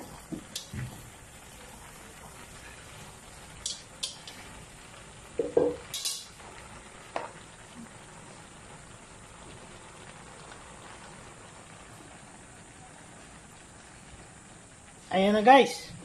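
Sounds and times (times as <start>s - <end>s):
frying sizzle: 0.0s - 16.0s.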